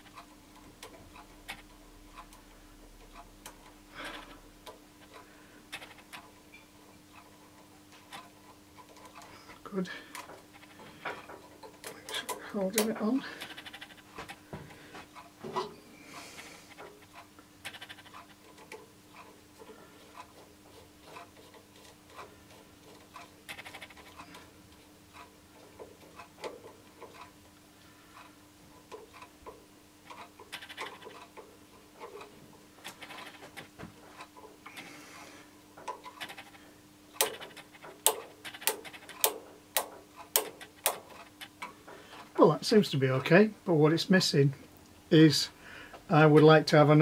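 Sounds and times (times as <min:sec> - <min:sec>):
faint steady hum: 0:00.0 - 0:47.0
small metal taps and clicks: 0:37.2 - 0:41.8.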